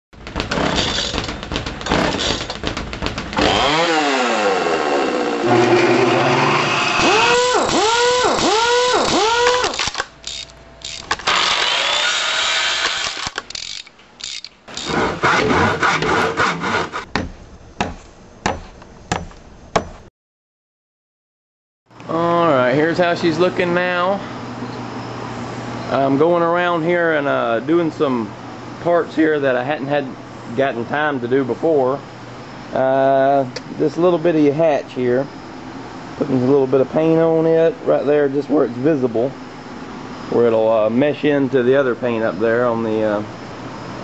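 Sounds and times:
knocking: 0:00.2 - 0:03.7
power tool whining and revving: 0:03.4 - 0:09.8, 0:11.2 - 0:13.4.

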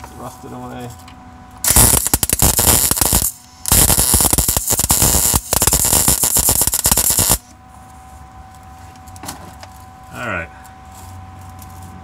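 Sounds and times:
welding arc crackling: 0:01.6 - 0:07.5.

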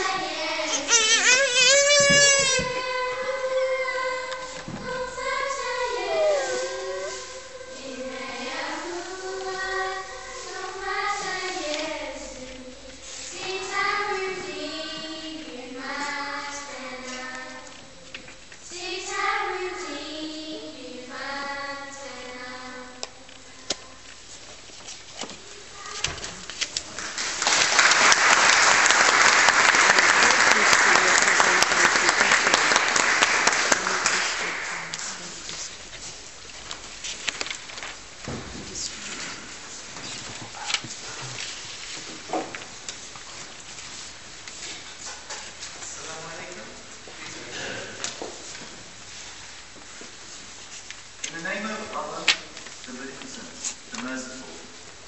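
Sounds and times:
person singing long notes: 0:05.7 - 0:07.4
audience applause: 0:27.0 - 0:35.2.

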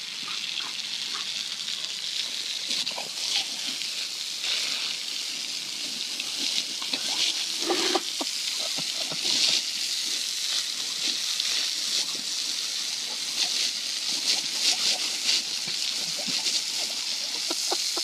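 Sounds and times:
hose spraying onto concrete: 0:00.0 - 0:18.0
dog splashing and gulping water: 0:02.6 - 0:03.8, 0:06.3 - 0:09.7, 0:13.1 - 0:17.8.

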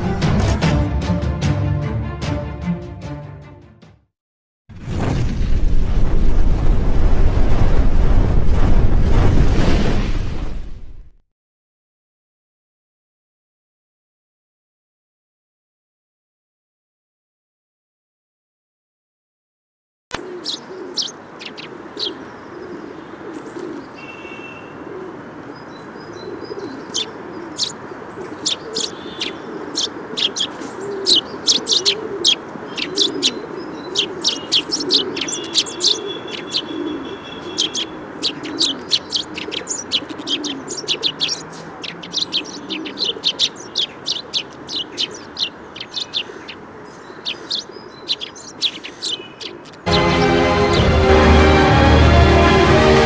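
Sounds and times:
small birds chirping: 0:20.2 - 0:49.9
steady outdoor hiss: 0:20.2 - 0:50.6.

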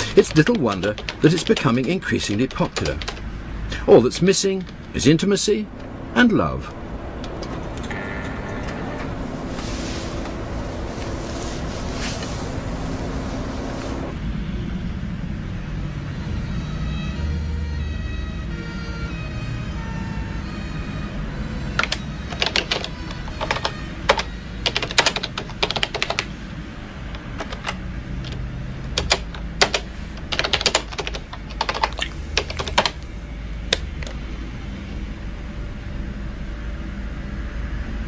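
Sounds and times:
typing on a computer keyboard: 0:00.0 - 0:03.2, 0:21.8 - 0:26.3, 0:27.2 - 0:33.0
low steady hum: 0:00.0 - 0:38.0.

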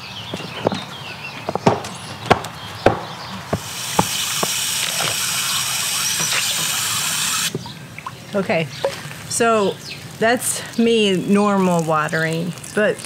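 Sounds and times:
hose wand spraying water: 0:03.5 - 0:07.6, 0:11.0 - 0:13.0.

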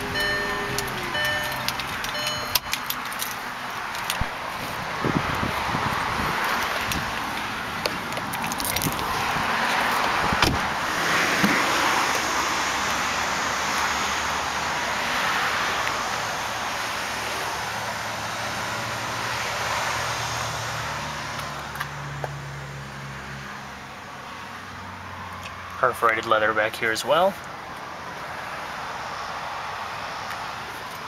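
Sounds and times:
low steady engine hum: 0:00.0 - 0:03.5
road traffic passing: 0:00.0 - 0:31.0.

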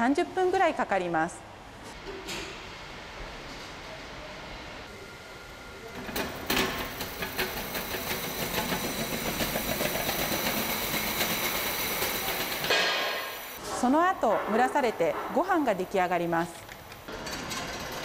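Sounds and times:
pots rattling on roller conveyor: 0:05.9 - 0:18.0.

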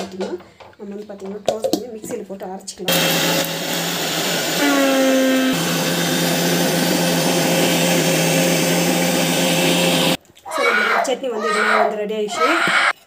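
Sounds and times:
mixer grinder motor whine: 0:02.9 - 0:10.2.

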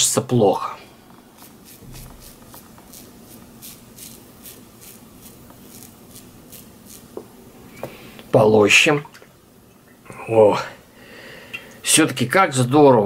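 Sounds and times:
razor rasping through stubble: 0:01.3 - 0:07.2.

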